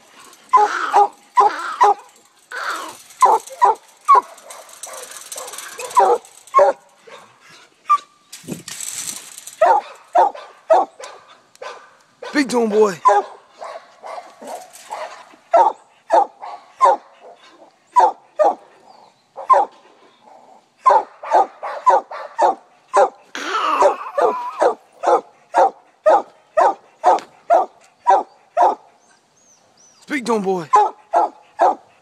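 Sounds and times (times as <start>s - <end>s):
dog barking: 0.6s - 2.1s, 9.6s - 12.4s, 13.0s - 17.4s, 18.0s - 18.6s, 19.4s - 19.7s, 20.8s - 23.2s, 23.8s - 28.9s, 30.7s - 31.9s.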